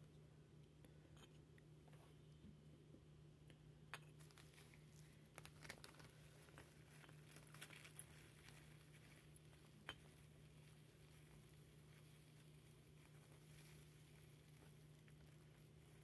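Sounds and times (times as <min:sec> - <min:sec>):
plastic bag crinkling: 0:04.1 - 0:16.0.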